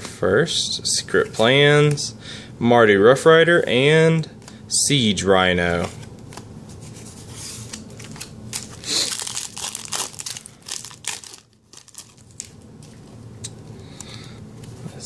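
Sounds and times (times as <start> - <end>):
foil wrapper tearing and crinkling: 7.7 - 12.6.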